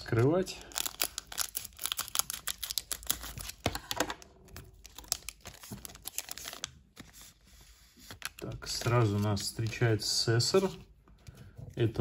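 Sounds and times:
foil wrapper crinkling and tearing: 0:00.0 - 0:03.9, 0:04.5 - 0:07.2.

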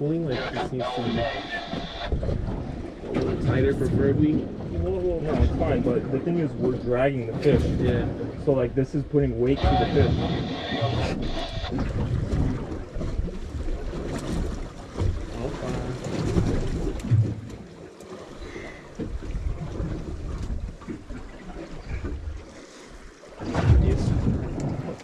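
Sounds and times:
water slapping against boat hull: 0:00.3 - 0:08.6, 0:09.4 - 0:25.0
wind buffeting microphone: 0:00.3 - 0:17.6, 0:23.4 - 0:25.0.

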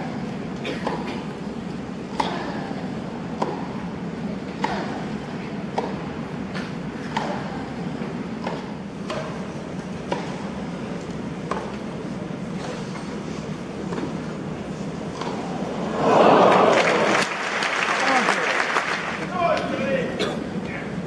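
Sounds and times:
murmur of stadium crowd: 0:00.0 - 0:21.0
rackets striking tennis ball: 0:04.5 - 0:07.6, 0:08.3 - 0:12.0, 0:15.0 - 0:15.6.

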